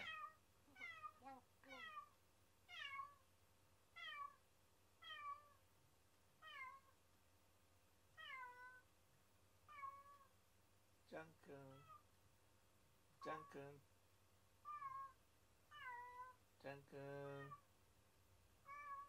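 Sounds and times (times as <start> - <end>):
cat meowing: 0.0 - 3.2, 4.0 - 4.4, 5.0 - 5.6, 6.4 - 6.9, 8.2 - 8.9, 9.7 - 10.3, 14.6 - 16.4, 18.6 - 19.0.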